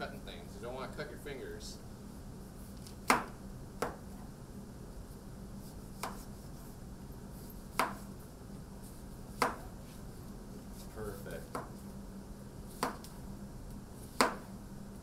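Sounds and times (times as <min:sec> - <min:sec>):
knife slicing melon: 0:06.0 - 0:06.3.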